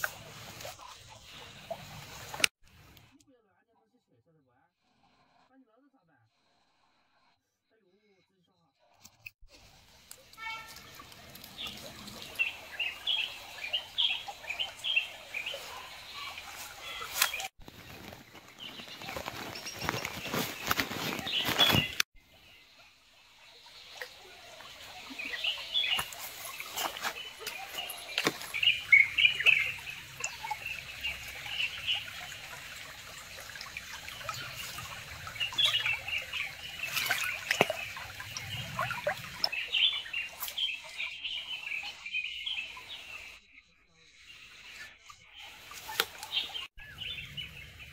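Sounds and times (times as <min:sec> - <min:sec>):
creek water trickling: 0:00.0 - 0:03.0, 0:09.5 - 0:43.4, 0:44.2 - 0:47.9
small birds chirping: 0:10.2 - 0:47.9.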